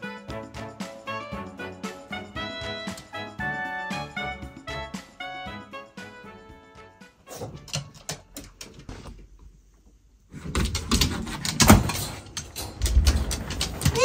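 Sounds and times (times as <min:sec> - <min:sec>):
dogs scrabbling at door: 0:10.3 - 0:14.0.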